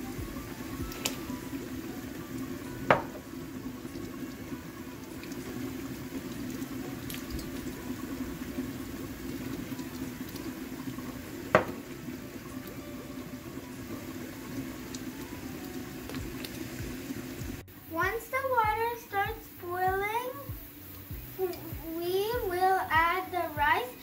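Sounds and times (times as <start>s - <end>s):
water bubbling in a pot: 0.0s - 24.0s.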